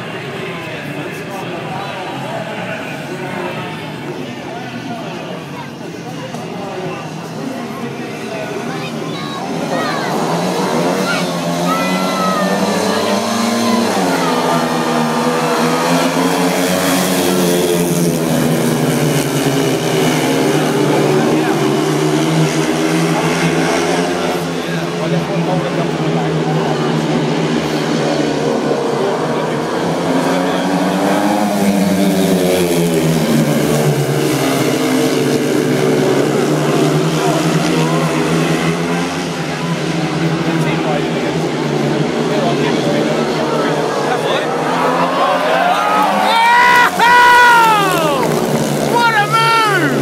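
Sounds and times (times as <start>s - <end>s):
motorbike engines racing: 0.0s - 50.0s.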